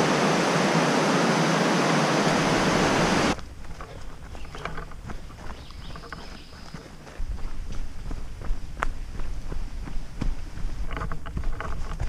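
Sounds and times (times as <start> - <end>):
river rapids rushing: 0.0 - 3.4
footsteps on dirt trail: 2.3 - 12.0.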